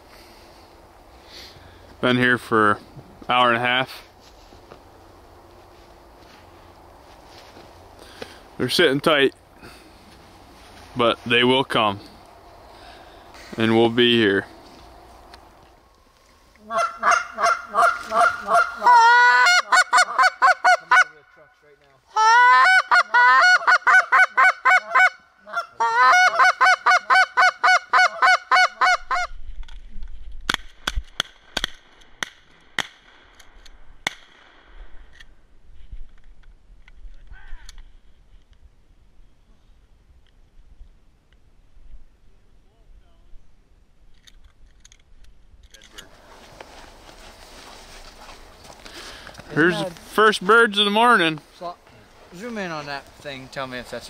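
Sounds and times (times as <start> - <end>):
goose call honks: 16.6 - 21.4.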